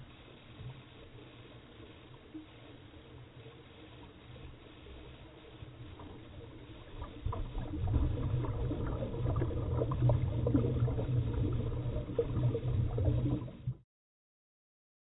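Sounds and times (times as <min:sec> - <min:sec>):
underwater rumble: 0:00.0 - 0:13.8
exhaled bubbles popping: 0:06.9 - 0:13.8.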